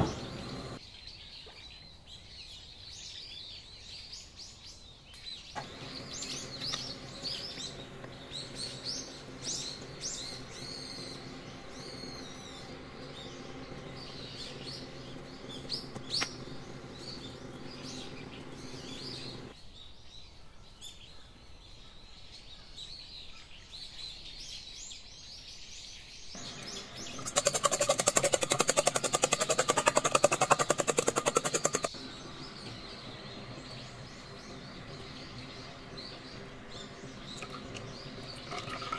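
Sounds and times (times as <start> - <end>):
low steady hum: 0.0 - 0.8, 5.6 - 19.5
small birds chirping: 0.0 - 1.9, 4.8 - 19.6, 26.2 - 38.9
fast rattling clatter: 27.0 - 32.0.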